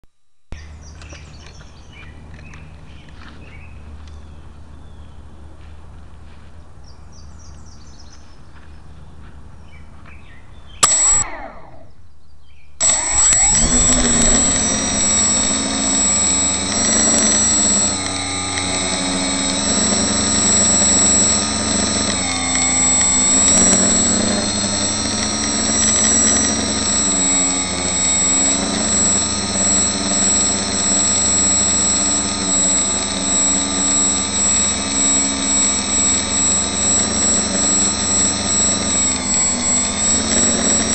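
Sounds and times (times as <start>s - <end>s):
quadcopter motors whirring: 10.8s - 11.8s, 12.8s - 40.9s.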